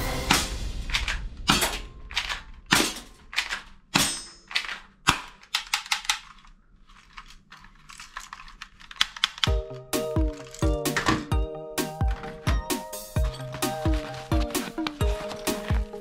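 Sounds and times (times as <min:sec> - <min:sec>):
plastic toy guns clacking: 0:00.9 - 0:11.3.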